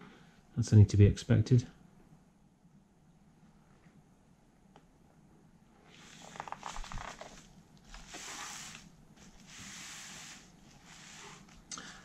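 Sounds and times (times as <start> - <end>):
bubble wrap rustling: 6.0 - 11.7.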